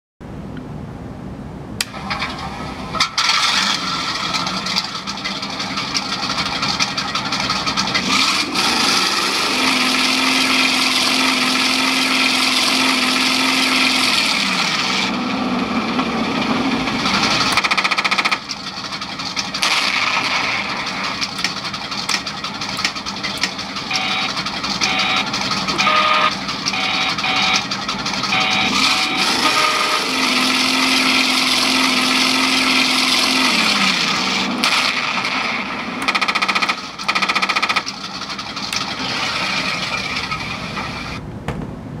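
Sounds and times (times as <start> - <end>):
tank engine running: 1.8 - 42.0
machine-gun fire: 17.1 - 18.8, 19.4 - 21.3, 34.6 - 39.6
short beeps: 23.9 - 27.7, 28.3 - 30.1
tone sliding down in pitch: 28.3 - 31.2.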